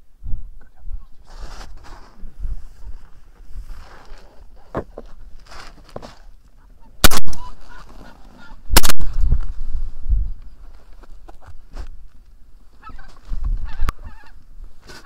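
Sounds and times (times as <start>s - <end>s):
geese honking: 6.6s - 9.0s, 12.8s - 14.4s
shotgun shots: 7.0s - 7.6s, 8.7s - 9.2s.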